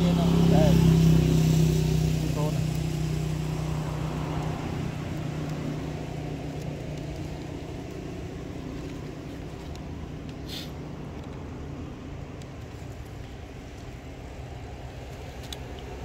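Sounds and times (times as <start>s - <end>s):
vehicle engine humming: 0.0s - 16.0s
short hiss: 10.4s - 10.8s.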